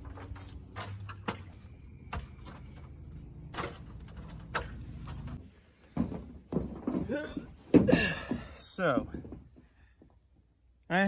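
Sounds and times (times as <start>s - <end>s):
ladder knocks and clanks: 3.5s - 9.6s.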